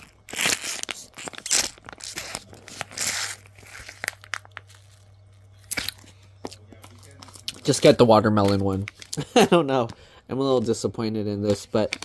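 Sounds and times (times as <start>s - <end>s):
foil juice pouch crinkling: 0.0s - 9.2s.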